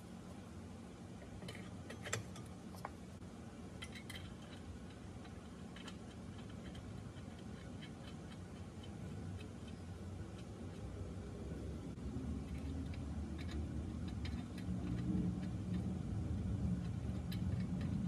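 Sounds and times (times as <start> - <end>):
steady low hum: 0.0 - 18.0
metal hardware clicking: 1.3 - 2.6, 3.8 - 10.9.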